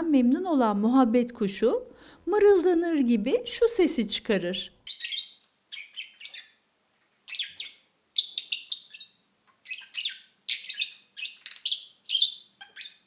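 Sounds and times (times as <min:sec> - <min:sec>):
budgerigar chirping: 0:04.8 - 0:06.6, 0:07.2 - 0:13.0.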